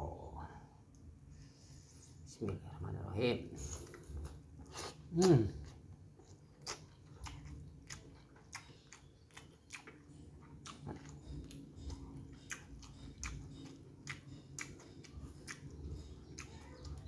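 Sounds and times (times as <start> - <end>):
person chewing noodles: 3.6 - 17.0.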